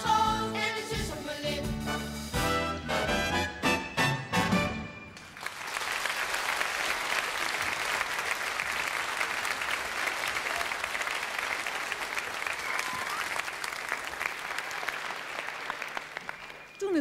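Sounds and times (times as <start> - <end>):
song ending: 0.0 - 5.1
studio audience applauding: 5.2 - 17.0.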